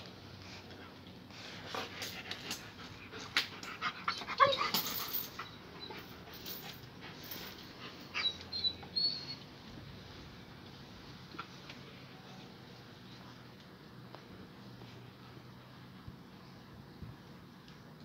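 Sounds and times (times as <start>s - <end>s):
dog panting and whimpering: 1.6s - 9.4s
dog whining: 4.0s - 6.6s, 8.0s - 9.5s.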